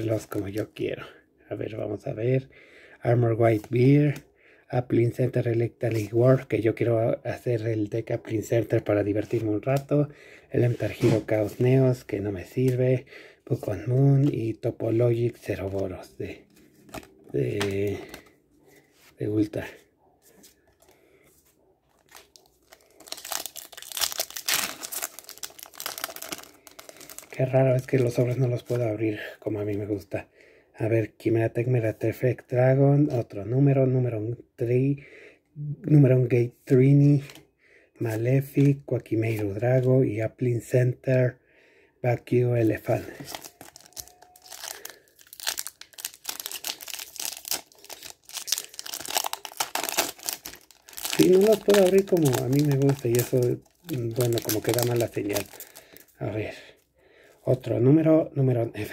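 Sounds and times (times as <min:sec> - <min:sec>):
foil pack crinkling and tearing: 0:22.0 - 0:28.4, 0:43.1 - 0:56.2.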